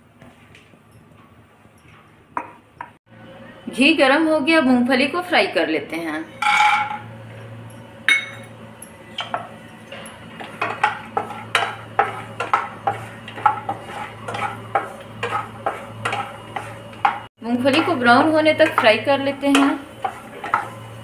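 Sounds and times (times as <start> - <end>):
spatula scraping pan: 10.3 - 21.0.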